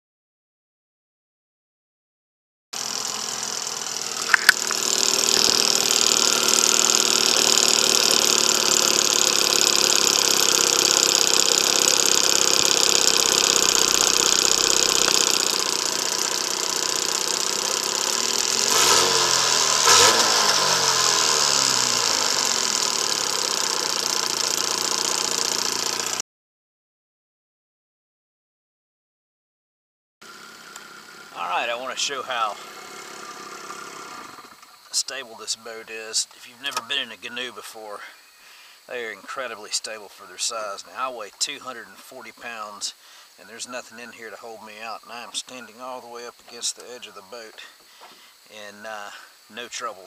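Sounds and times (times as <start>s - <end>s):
outboard motor running: 2.8s - 26.2s, 30.2s - 35.2s
sharp clicks: 4.2s - 20.6s.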